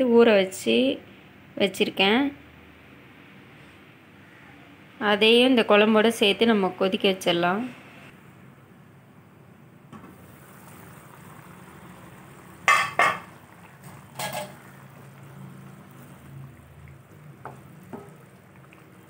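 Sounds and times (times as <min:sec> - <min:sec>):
stew bubbling: 0:10.1 - 0:19.0
metal pot lid clanking: 0:12.6 - 0:14.9.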